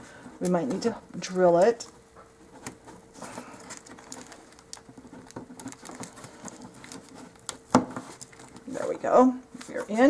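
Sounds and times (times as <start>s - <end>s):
small clicks and scratches: 1.6s - 8.9s.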